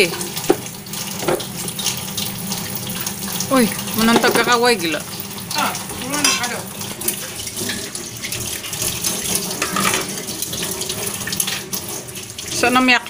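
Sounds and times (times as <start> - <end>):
tap water running into sink: 0.0 - 13.0
dishes knocking: 0.4 - 1.6, 4.0 - 4.7, 6.1 - 6.5, 9.5 - 10.2.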